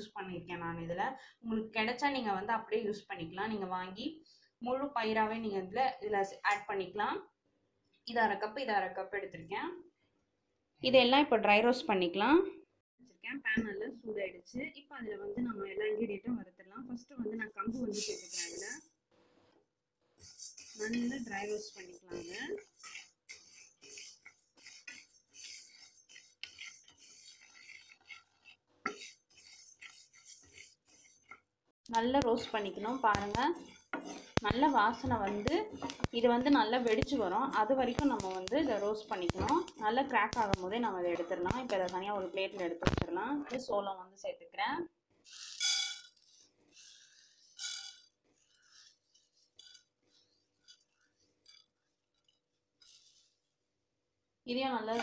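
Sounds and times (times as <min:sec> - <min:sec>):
spatula scraping grains in pan: 0:17.8 - 0:18.8, 0:20.2 - 0:43.4, 0:45.2 - 0:53.6
grains pattering into frying pan: 0:31.9 - 0:43.1.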